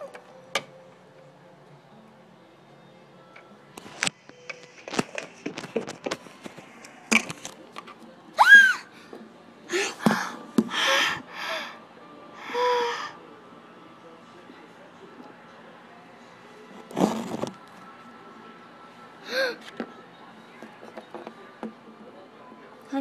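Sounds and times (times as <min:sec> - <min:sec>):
child crying out: 0:08.4 - 0:08.9
breathy gasps: 0:08.9 - 0:11.8, 0:12.4 - 0:13.2, 0:19.2 - 0:19.6.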